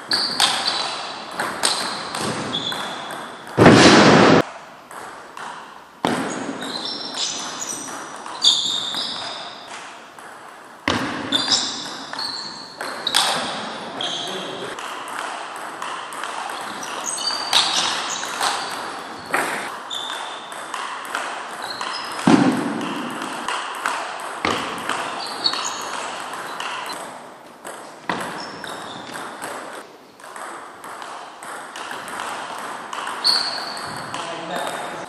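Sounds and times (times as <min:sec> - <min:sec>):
table tennis ball pings: 0:00.1 - 0:03.6, 0:04.9 - 0:34.8
heavier thump: 0:03.6 - 0:04.4.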